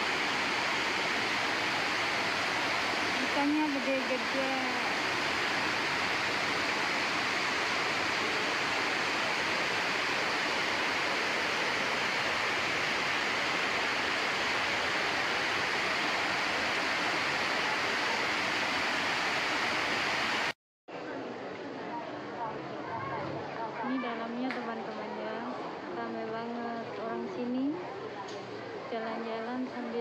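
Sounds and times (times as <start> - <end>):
waterfall pouring into pond: 0.0 - 20.5.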